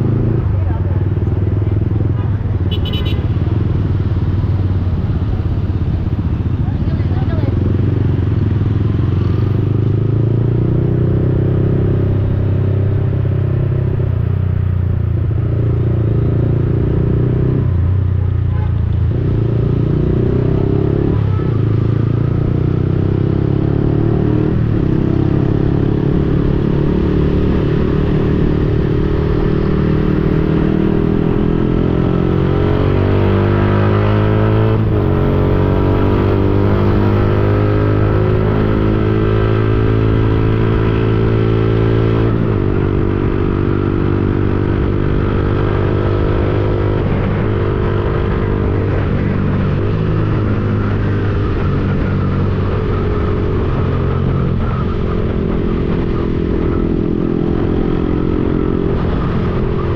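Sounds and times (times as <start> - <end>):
motorcycle engine shifting gears: 18.8 - 59.9.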